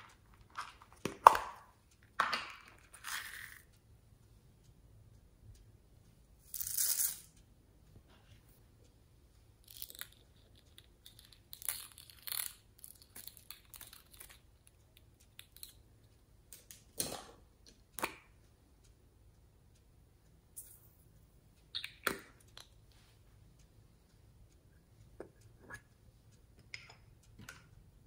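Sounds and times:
plastic slinky coils clicking: 2.7s - 3.8s, 6.5s - 7.4s, 9.6s - 17.1s
sprinkles rattling into glass dish: 3.0s - 3.6s.

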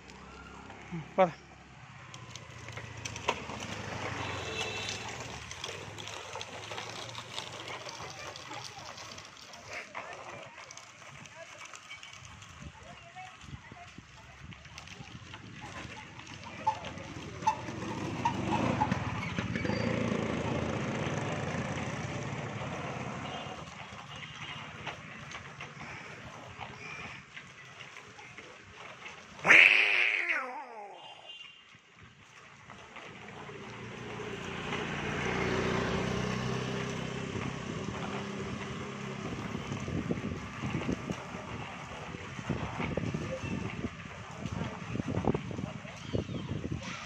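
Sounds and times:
small motorcycle engine running: 2.1s - 13.6s, 14.5s - 29.0s, 32.6s - 47.0s
wind rumbling on microphone: 37.2s - 47.0s.

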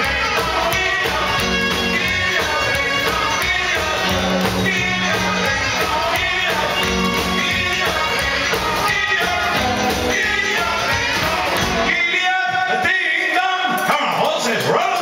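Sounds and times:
bass guitar: 0.0s - 12.0s
electric guitars: 0.0s - 12.0s
drums: 0.0s - 15.0s
man singing: 0.0s - 15.0s.

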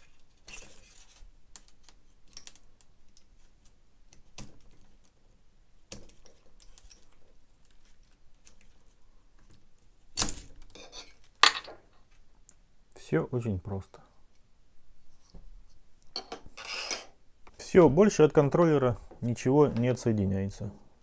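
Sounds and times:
wire rustling: 0.0s - 12.6s.

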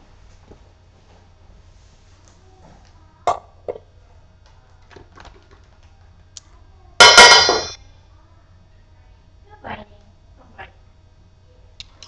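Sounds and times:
metal dog bowl clanging: 7.0s - 7.8s.

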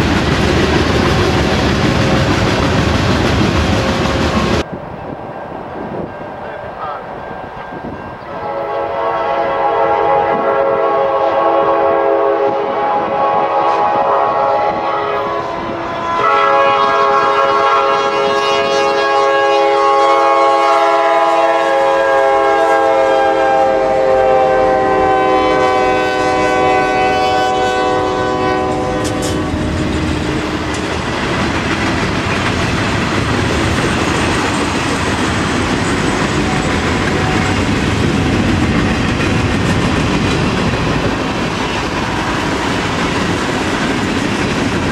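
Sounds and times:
freight train wheel clatter: 0.0s - 4.7s, 28.6s - 44.9s
locomotive air horn blasts: 8.3s - 30.8s, 36.4s - 37.7s.

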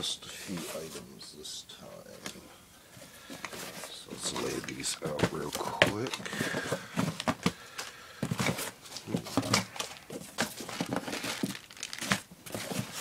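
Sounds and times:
packaging rustling in box: 3.3s - 13.0s.

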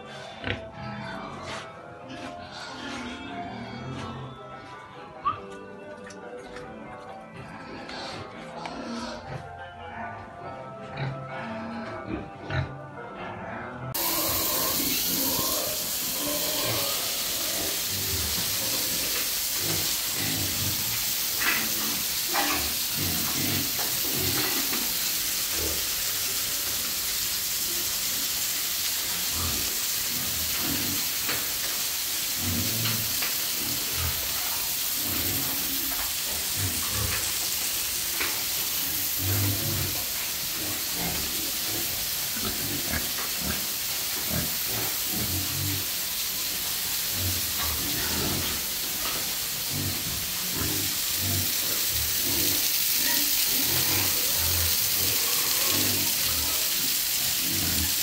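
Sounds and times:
pigs grunting: 0.0s - 4.6s, 7.3s - 26.9s, 29.1s - 31.6s, 32.2s - 58.0s
steady hiss: 14.0s - 58.0s.

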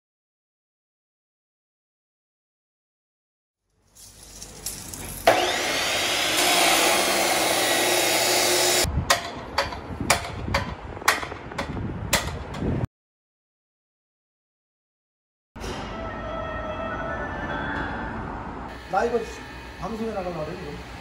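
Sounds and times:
power tool whining: 5.2s - 8.9s
sharp knocks: 9.1s - 12.8s.

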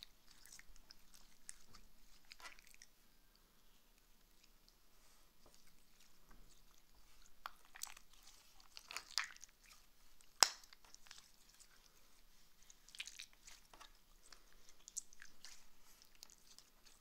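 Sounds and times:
hands squishing slime: 0.0s - 3.0s, 4.0s - 17.0s.

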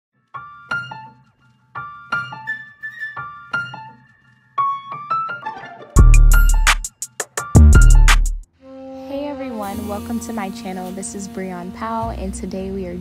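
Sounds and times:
loud beat with heavy bass: 6.0s - 8.4s
struck keyboard notes: 6.0s - 8.4s.

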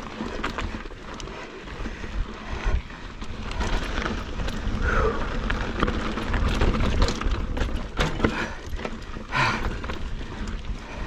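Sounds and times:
bike rattling knocks: 5.6s - 10.4s.

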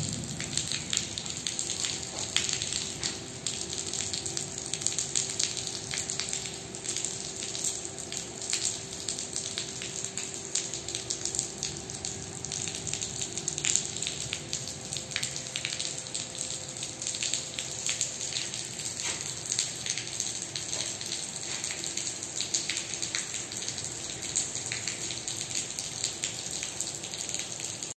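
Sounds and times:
watery rush: 0.0s - 5.6s
sharp drips and splatters: 0.0s - 28.0s.

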